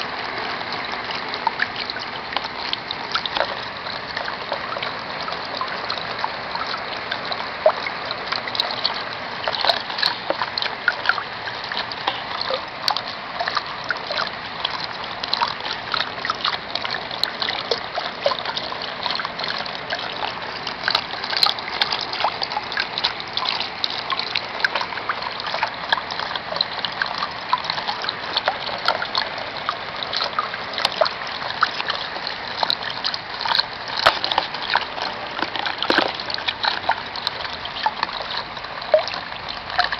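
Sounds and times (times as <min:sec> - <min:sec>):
rain on a plastic sheet: 0:00.0 - 0:39.9
trickling water: 0:00.0 - 0:39.9.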